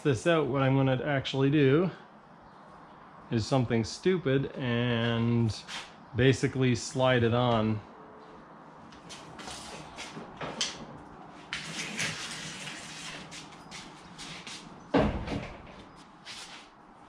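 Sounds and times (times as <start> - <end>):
hull scraping across boards: 11.4 - 14.8
heavy thud: 14.9 - 15.8
knocks: 14.9 - 15.9.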